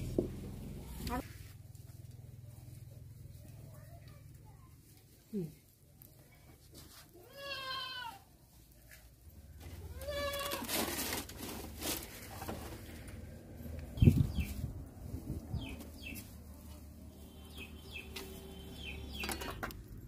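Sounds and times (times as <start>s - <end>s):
goat bleating: 7.2s - 8.3s, 9.8s - 10.7s
small birds chirping: 13.8s - 19.8s.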